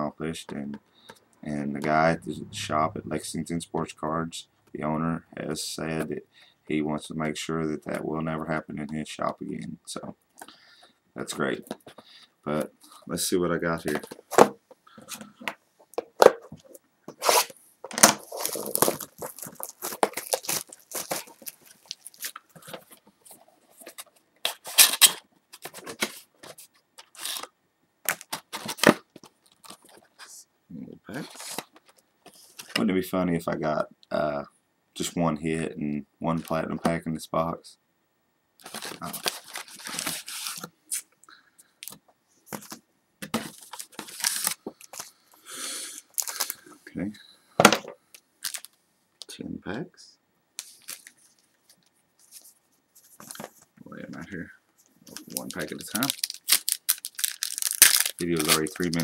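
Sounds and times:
wrapping tearing: 17.2s - 22.7s, 38.6s - 40.7s, 43.6s - 45.0s, 46.1s - 46.6s, 55.1s - 59.0s
cardboard box crinkling and scraping: 18.2s - 22.9s.

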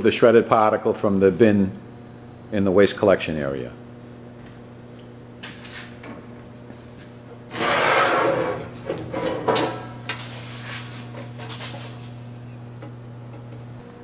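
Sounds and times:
steady low hum: 0.0s - 14.0s
metal bin scraping: 7.5s - 12.0s.

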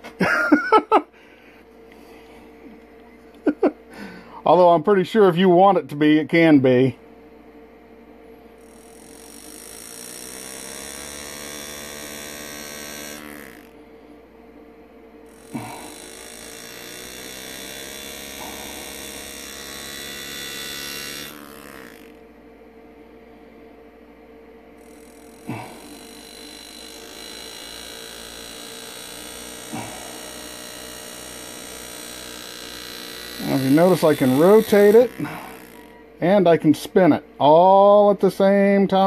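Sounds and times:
power engraver buzzing: 7.9s - 37.8s.

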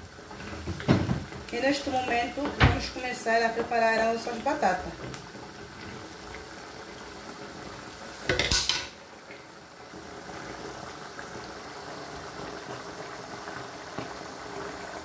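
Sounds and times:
sauce bubbling in a frying pan: 0.0s - 15.0s
cookware clatter: 8.3s - 9.0s.

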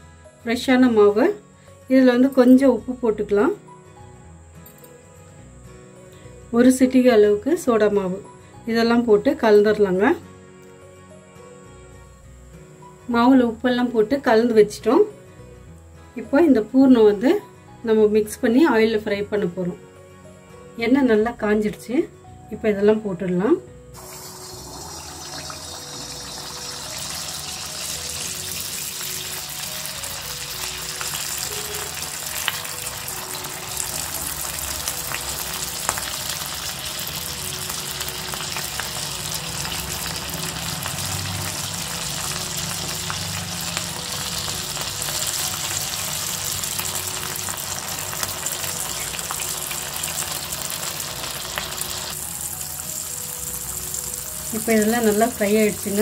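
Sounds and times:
food deep-frying in hot oil: 24.0s - 56.0s.

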